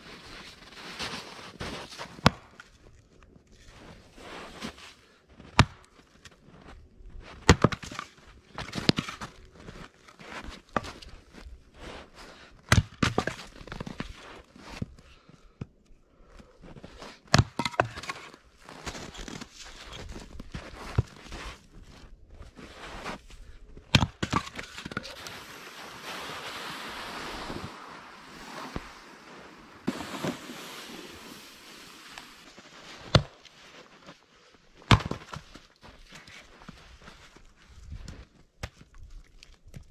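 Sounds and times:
axe splitting firewood: 17.2s - 18.4s, 23.9s - 25.2s, 33.0s - 33.4s, 34.8s - 35.4s
sled sliding over snow: 24.5s - 33.0s.

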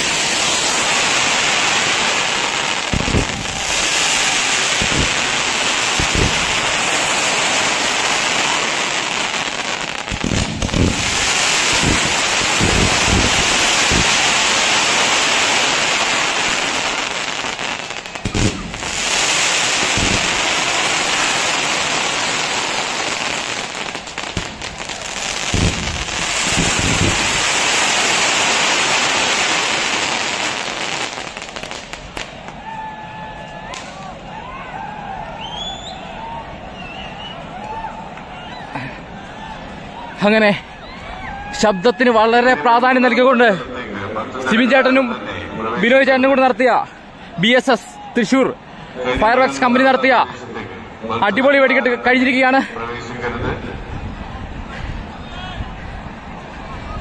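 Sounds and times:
fireworks crackling: 0.0s - 32.7s, 33.6s - 34.2s
fireworks bangs: 0.0s - 32.8s.

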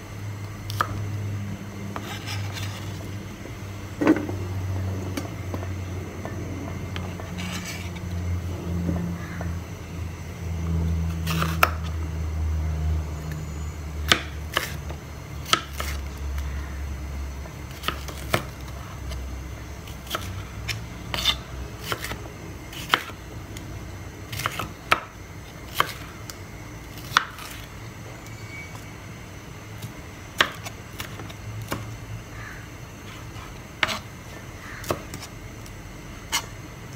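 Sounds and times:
low hum: 0.0s - 15.4s.

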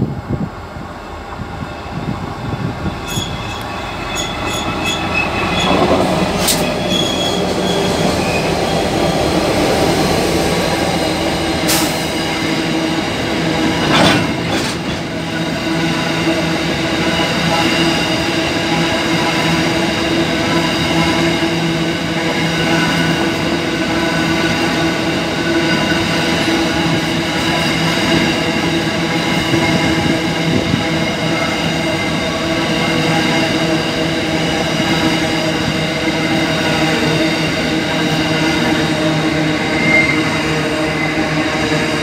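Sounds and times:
diesel locomotives passing: 0.0s - 42.0s
train wheel noise: 0.0s - 42.0s
wheel squeal: 2.9s - 8.8s, 39.7s - 41.2s.

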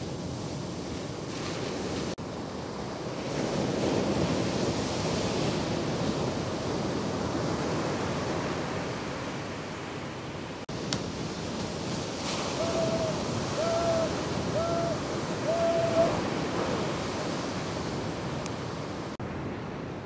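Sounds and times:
wind buffeting microphone: 10.7s - 20.0s
surf breaking: 10.8s - 18.2s.

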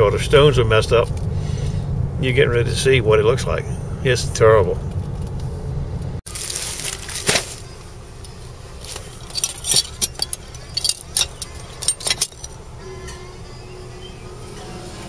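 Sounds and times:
knife blades clinking: 9.0s - 12.6s.

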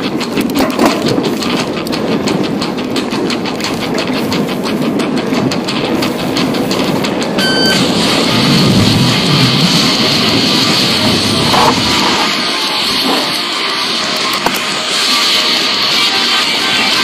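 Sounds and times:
mountain bike rattling over rocks: 0.0s - 7.4s
high squeal: 7.4s - 11.4s.

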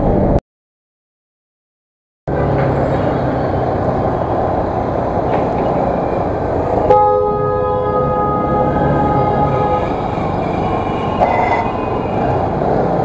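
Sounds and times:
vehicle horn blast: 6.9s - 10.1s.

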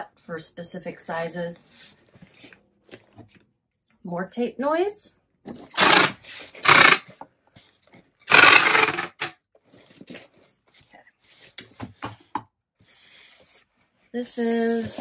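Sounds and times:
packing tape screeching off tape gun: 5.5s - 7.2s, 8.3s - 9.4s.

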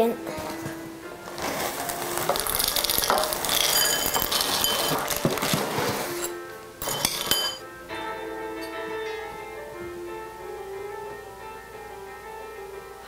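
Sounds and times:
background music: 0.0s - 13.0s
cereal pouring into a bowl: 1.4s - 7.6s.

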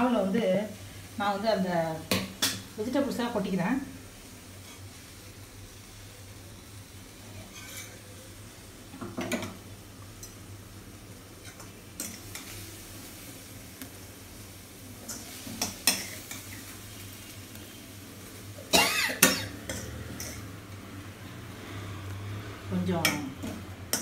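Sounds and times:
metal spoon scraping steel bowl: 7.4s - 8.0s.

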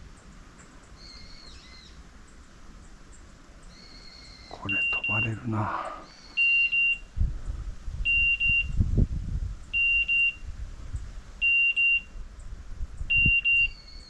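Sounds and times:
beeper collar short high beeps: 4.6s - 5.6s.

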